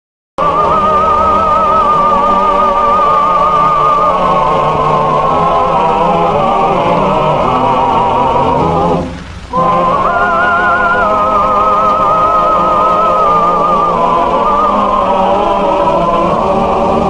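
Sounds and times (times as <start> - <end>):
slow melody with heavy vibrato: 0.4 - 17.0.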